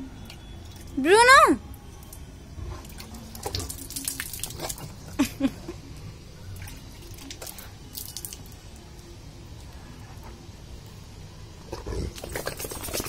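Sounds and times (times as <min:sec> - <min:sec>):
water splashing on concrete: 0:03.0 - 0:04.9, 0:06.6 - 0:08.6.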